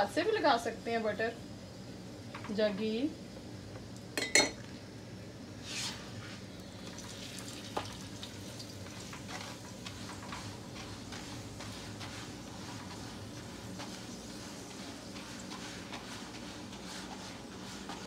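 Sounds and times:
steady low hum: 0.0s - 6.9s
faint sizzle: 0.0s - 18.0s
metal spoon clinking: 4.2s - 4.6s
spatula scraping and tapping: 8.9s - 18.0s.

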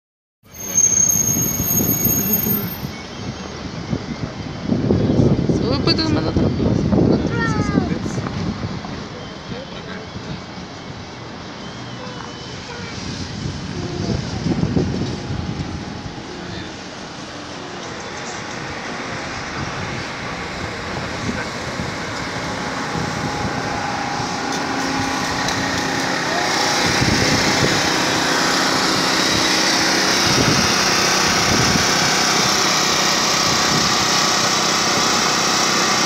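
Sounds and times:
traffic and road noise: 0.4s - 36.0s
portable generator droning: 20.2s - 36.0s.

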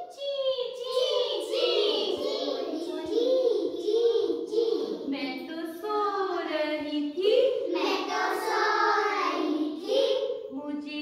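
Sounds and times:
young children singing in chorus: 0.0s - 5.1s, 7.7s - 10.5s.

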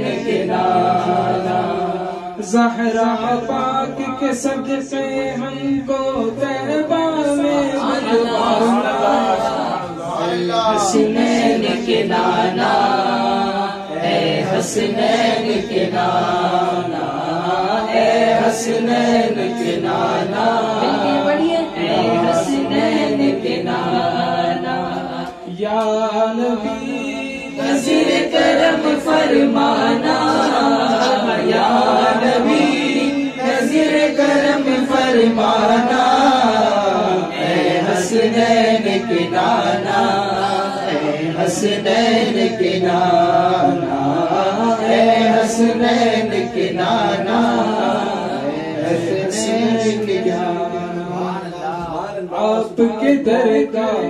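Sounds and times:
men singing devotional chant: 0.0s - 54.0s.

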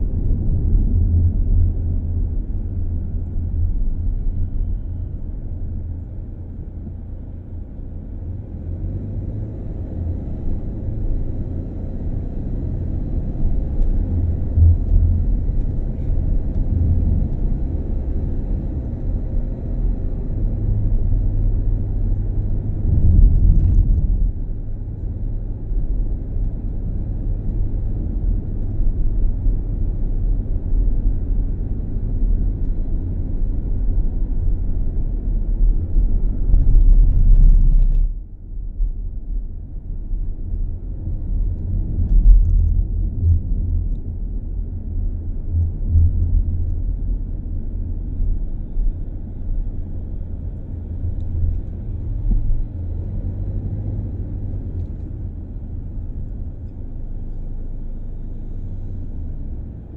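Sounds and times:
vehicle engine and tyres rumbling: 0.0s - 59.9s.

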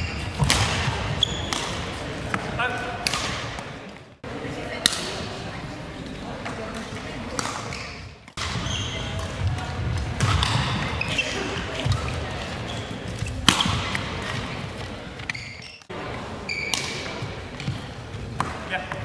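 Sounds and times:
shoes squeaking: 0.0s - 2.9s, 7.6s - 9.6s, 10.2s - 19.0s
rackets striking shuttlecock: 0.0s - 3.7s, 6.7s - 11.1s, 13.1s - 15.9s, 16.5s - 17.8s.

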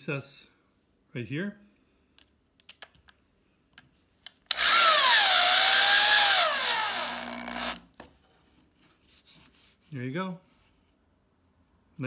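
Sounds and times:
electric drill driving screw: 4.5s - 7.9s.

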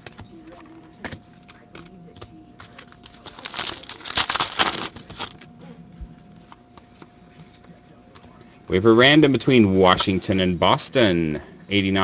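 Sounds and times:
cards rustling: 1.4s - 5.5s
foil wrapper tearing and crinkling: 2.8s - 5.4s.

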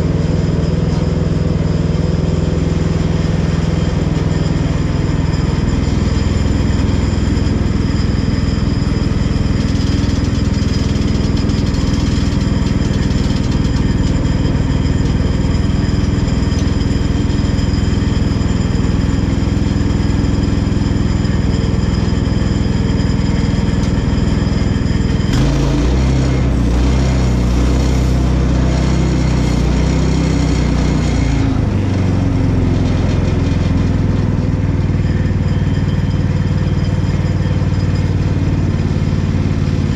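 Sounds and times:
bandsaw mill engine running: 0.0s - 39.9s
saw blade cutting log: 25.3s - 31.6s.

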